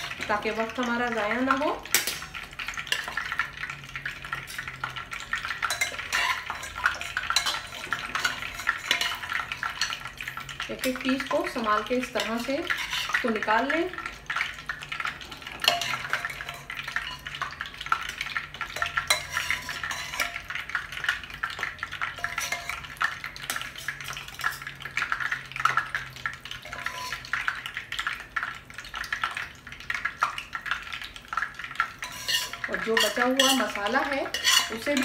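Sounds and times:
metal spoon scraping and clinking: 5.6s - 10.1s, 12.2s - 13.3s, 15.6s - 17.4s, 18.8s - 20.6s, 22.2s - 22.9s, 26.6s - 27.4s, 32.0s - 35.0s.

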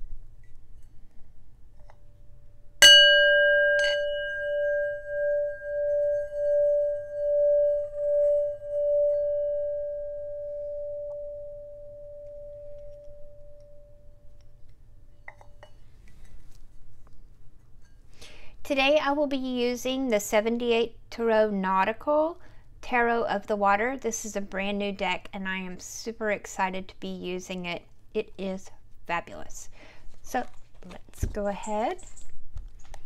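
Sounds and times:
mallet clinking against bowl: 2.8s - 11.4s
singing bowl struck and ringing: 2.8s - 14.3s.

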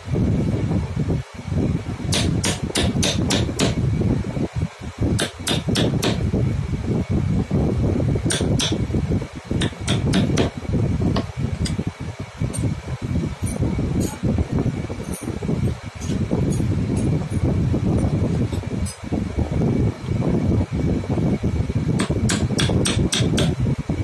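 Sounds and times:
mallet striking steel chisel: 2.1s - 3.8s, 5.2s - 6.2s, 8.3s - 8.8s, 9.6s - 10.5s, 22.0s - 23.6s.

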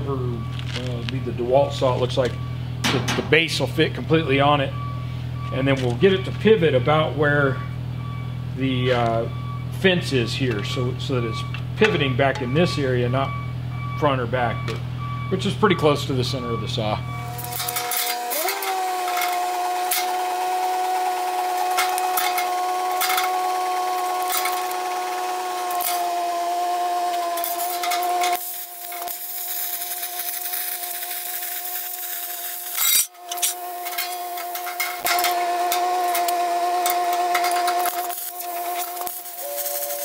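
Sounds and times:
plasma cutter hissing whine: 17.2s - 40.0s.

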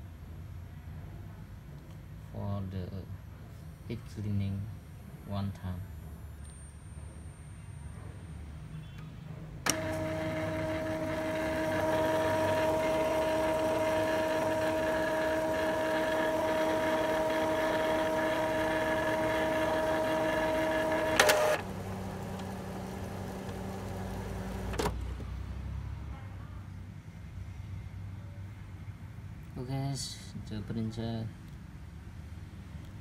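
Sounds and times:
printer clicks: 9.7s - 25.0s
printer motor whining: 9.7s - 25.0s.

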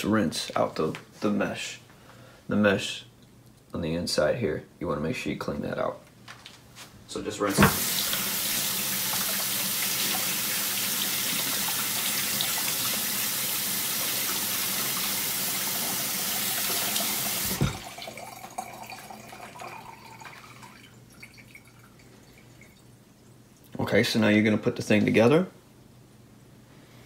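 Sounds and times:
kitchen faucet running: 7.5s - 22.8s.

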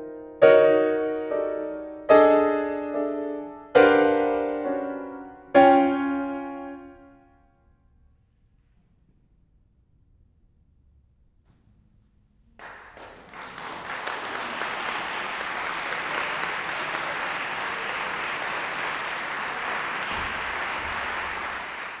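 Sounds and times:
audience applauding: 12.6s - 22.0s.

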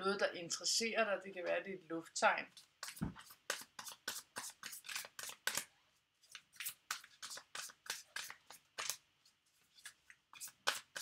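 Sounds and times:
cards being shuffled: 2.5s - 11.0s.

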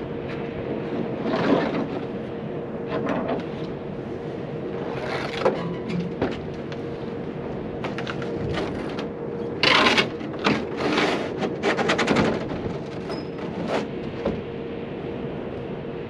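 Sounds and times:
steady hum: 0.0s - 16.0s
tools scraping and clattering: 9.6s - 13.9s.

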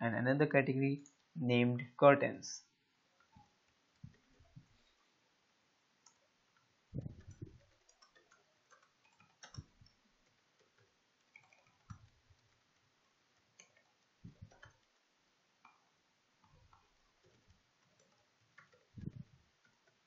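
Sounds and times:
computer keyboard typing: 6.0s - 20.0s.

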